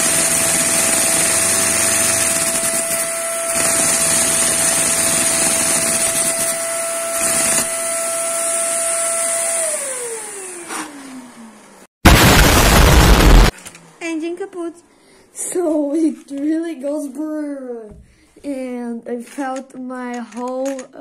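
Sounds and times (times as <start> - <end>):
vacuum cleaner motor whining: 0.0 - 11.8.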